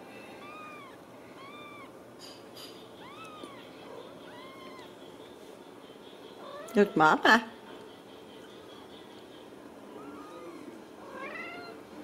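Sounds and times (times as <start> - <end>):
kittens mewing: 0.3 - 2.1, 2.8 - 5.2, 9.8 - 11.9.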